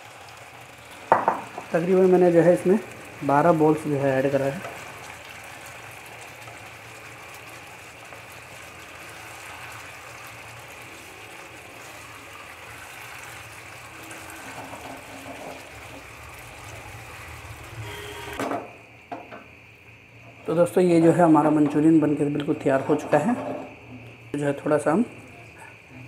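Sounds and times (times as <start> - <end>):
gravy bubbling in a frying pan: 0.0 - 18.2.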